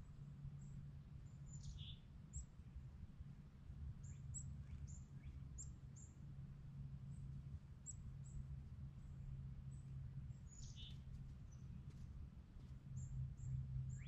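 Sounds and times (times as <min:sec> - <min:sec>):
low steady hum: 0:00.0 - 0:14.0
small birds chirping: 0:01.5 - 0:02.5, 0:09.8 - 0:11.8.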